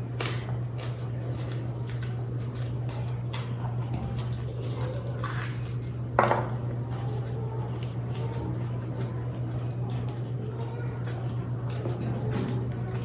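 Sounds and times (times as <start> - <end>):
wet chewing: 0.0 - 13.0.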